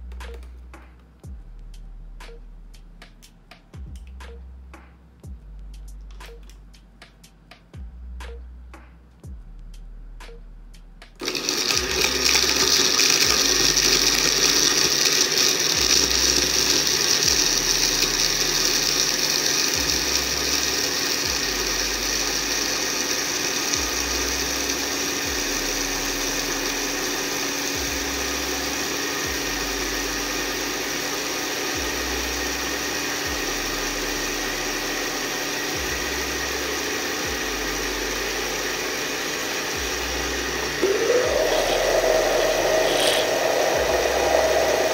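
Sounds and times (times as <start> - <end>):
blender crushing ice: 11.2 - 44.9.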